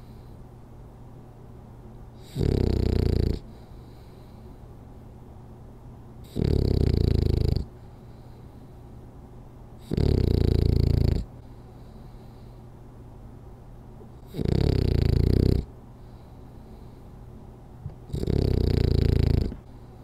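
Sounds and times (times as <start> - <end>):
dog snoring: 2.2 - 4.0, 6.2 - 7.8, 9.8 - 11.3, 14.2 - 15.7, 17.8 - 19.8.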